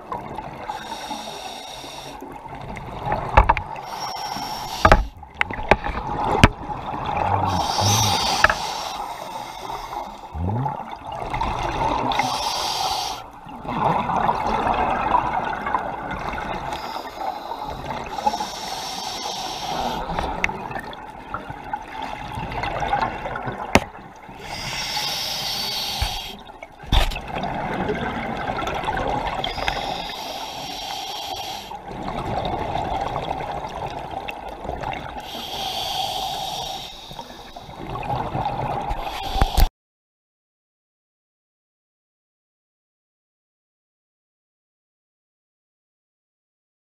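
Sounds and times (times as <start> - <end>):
diver breathing through regulator: 0.7 - 2.2, 3.7 - 5.2, 7.3 - 10.8, 12.0 - 13.4, 16.6 - 20.4, 24.4 - 26.5, 29.4 - 31.9, 35.2 - 38.0, 38.9 - 39.7.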